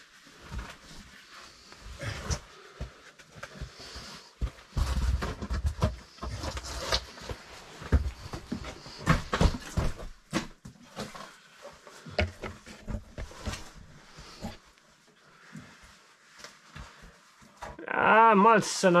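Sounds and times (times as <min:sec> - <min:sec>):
heavy breathing: 0:01.4 - 0:04.8, 0:13.4 - 0:16.0.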